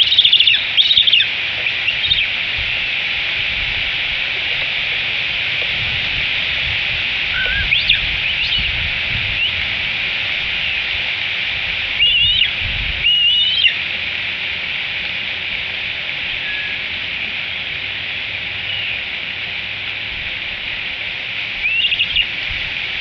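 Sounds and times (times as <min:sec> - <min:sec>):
eagles whistled calls: 0:00.0 - 0:02.9, 0:07.3 - 0:08.8, 0:11.9 - 0:13.8, 0:16.3 - 0:16.9, 0:18.6 - 0:19.1, 0:21.6 - 0:22.4
rain hiss: 0:00.0 - 0:23.0.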